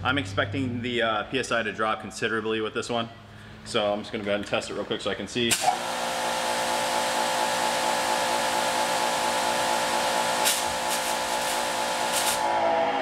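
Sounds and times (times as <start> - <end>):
water jet hissing: 5.5 - 12.5
pressure washer motor hum: 5.5 - 13.0.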